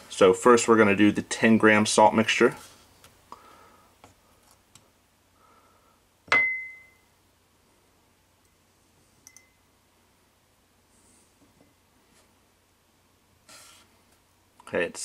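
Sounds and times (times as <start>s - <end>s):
light double tick with ring: 9.2s - 9.6s.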